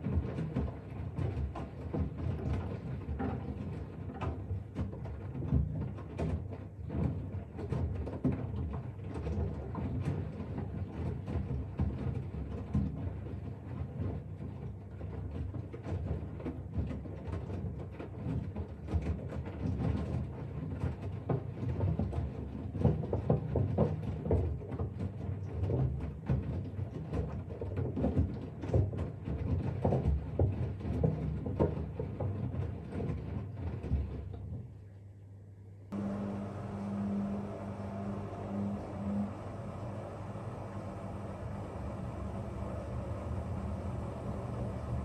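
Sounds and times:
washing machine motor hum: 0:00.0 - 0:15.4, 0:35.9 - 0:45.0
washing machine drum sloshing: 0:00.0 - 0:34.7, 0:35.9 - 0:45.0.

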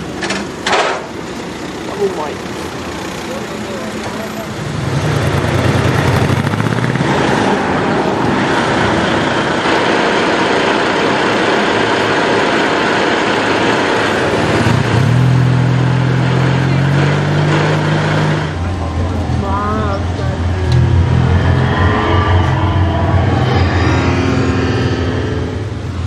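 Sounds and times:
street traffic: 0:00.0 - 0:26.0
engine idling close by: 0:01.0 - 0:07.0
people talking: 0:01.9 - 0:02.4, 0:03.2 - 0:04.5, 0:18.6 - 0:20.8.

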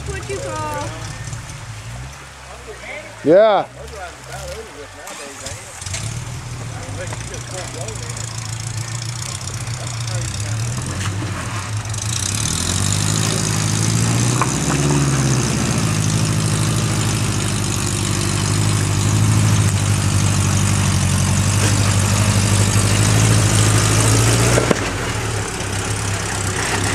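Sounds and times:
buggy engine revving under load: 0:00.0 - 0:26.9.

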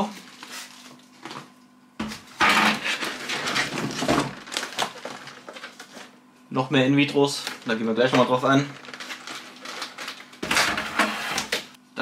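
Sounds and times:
plastic packaging crinkling: 0:02.4 - 0:06.2, 0:07.3 - 0:10.8.

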